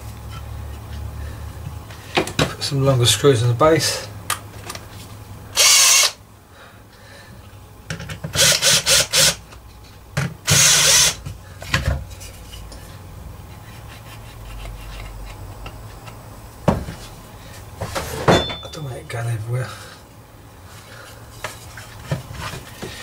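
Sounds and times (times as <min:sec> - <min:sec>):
drill driving screws into wood: 0:05.6 - 0:06.2, 0:08.3 - 0:09.4, 0:10.4 - 0:11.2.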